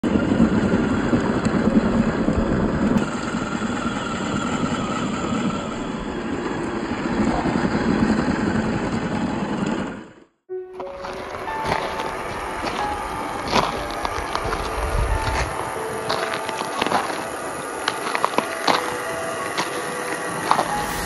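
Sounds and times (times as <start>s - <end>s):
toy truck electric motor: 0.2s - 10.2s.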